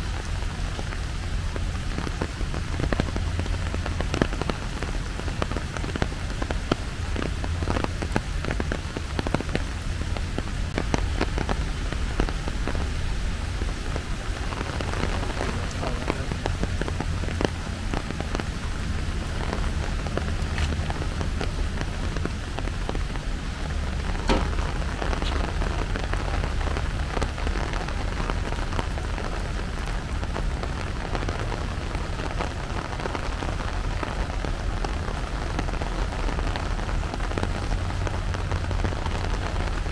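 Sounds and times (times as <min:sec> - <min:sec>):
rain falling: 0:00.0 - 0:39.9
low rumble: 0:14.8 - 0:27.8.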